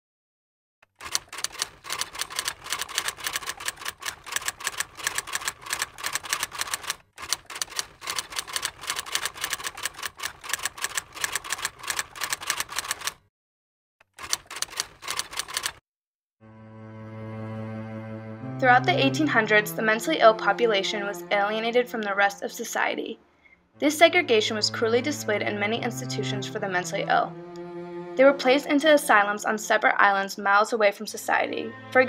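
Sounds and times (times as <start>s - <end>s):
typewriter keys clacking: 0.8s - 13.2s, 14.1s - 15.8s
slow bowed-string music: 16.4s - 22.4s, 23.8s - 30.2s, 31.2s - 32.0s.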